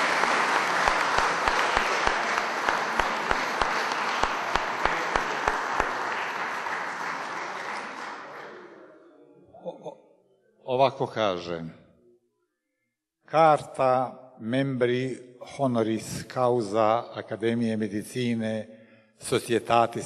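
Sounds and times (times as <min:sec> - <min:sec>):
loud evenly spaced claps: 0:00.0 - 0:08.6
audience applauding: 0:00.0 - 0:08.9.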